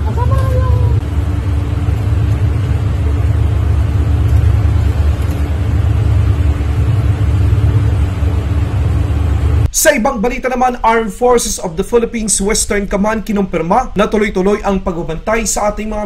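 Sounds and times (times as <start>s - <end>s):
ship noise: 0.0s - 10.5s
steady low hum: 0.0s - 16.0s.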